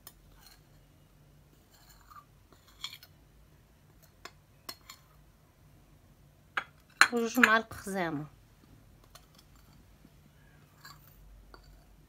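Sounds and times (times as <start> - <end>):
spoon scraping ceramic plate: 0.0 - 0.9, 1.5 - 3.2, 3.9 - 5.2, 10.6 - 12.0.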